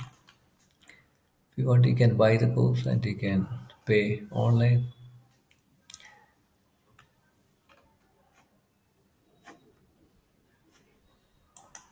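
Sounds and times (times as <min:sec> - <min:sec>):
faint mouse clicks: 0:11.5 - 0:11.9.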